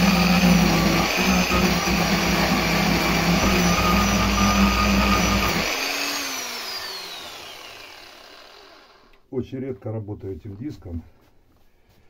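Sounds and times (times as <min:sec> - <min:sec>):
grinder winding down whine: 0:00.0 - 0:09.2
angle grinder cutting wood: 0:00.0 - 0:09.3.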